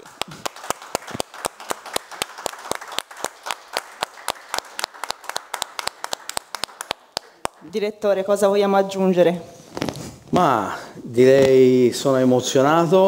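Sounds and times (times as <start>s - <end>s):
sharp close claps: 0.0s - 7.7s
audience clapping: 0.0s - 7.8s.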